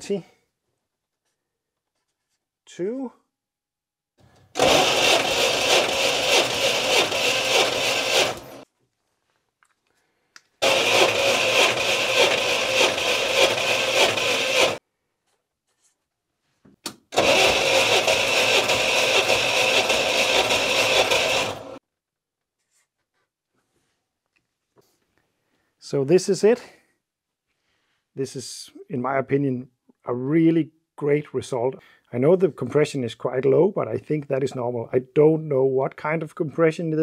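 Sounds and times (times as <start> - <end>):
starter motor cranking engine: 4.5 - 8.6, 10.6 - 14.8, 17.1 - 21.8.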